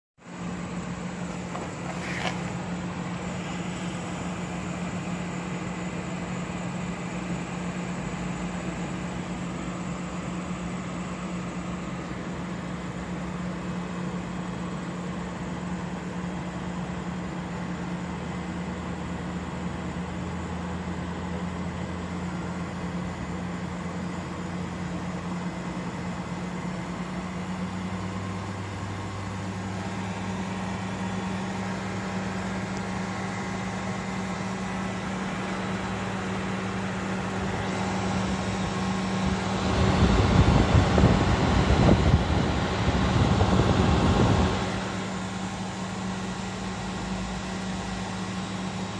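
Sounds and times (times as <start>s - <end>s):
fan airflow rushing: 1.0s - 4.6s, 28.2s - 46.8s.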